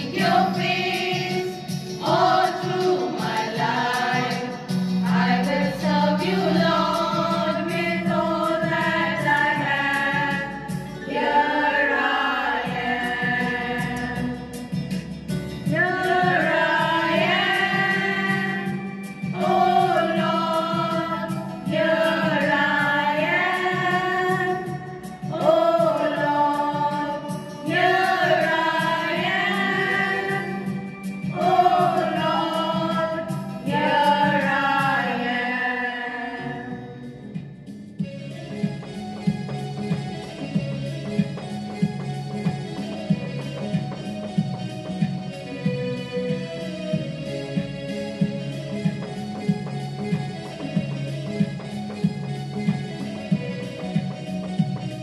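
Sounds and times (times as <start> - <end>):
women singing together: 0.0 - 14.4, 15.7 - 37.0.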